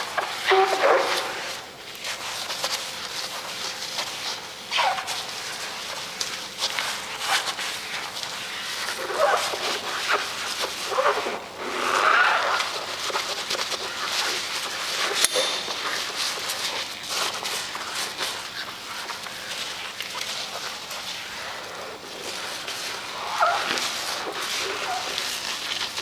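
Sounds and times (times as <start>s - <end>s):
rubber squeaks: 0.0s - 1.5s, 4.2s - 5.8s, 8.5s - 26.0s
scrub pad rubbing wet porcelain: 0.0s - 26.0s.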